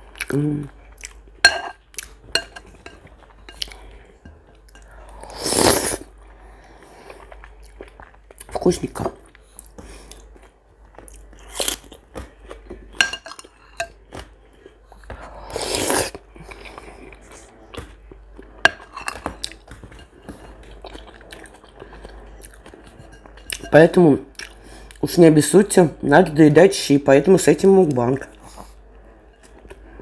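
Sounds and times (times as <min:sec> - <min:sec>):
slurping soup off spoon: 0:05.1 - 0:06.1
chewing and biting: 0:16.5 - 0:23.6.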